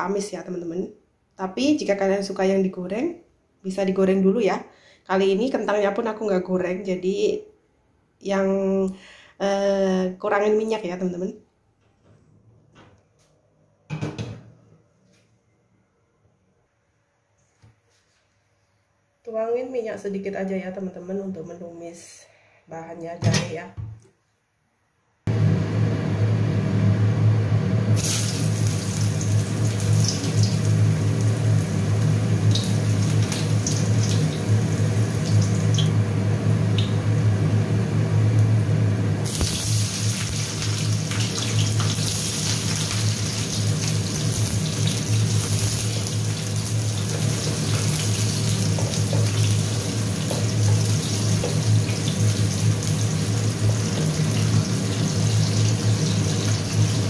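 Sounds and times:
steady low hum: 25.3 - 40.2
oil sizzling in a wok: 27.9 - 38.0, 39.2 - 57.0.

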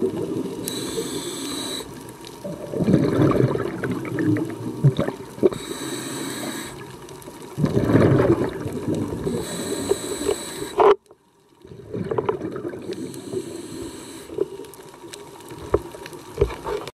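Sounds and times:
underwater diver breathing bubbles: 0.0 - 7.0, 7.6 - 11.0, 11.6 - 14.7.

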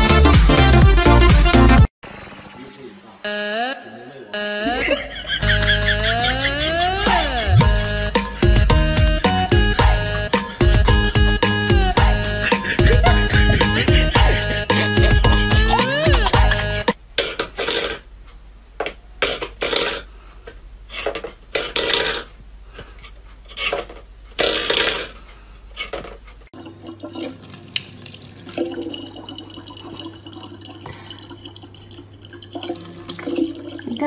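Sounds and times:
tap water running into bottle: 26.6 - 34.0.

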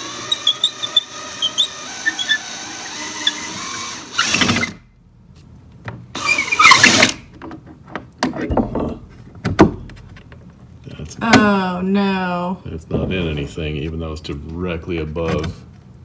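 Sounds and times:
cordless drill turning slowly: 0.0 - 4.3.

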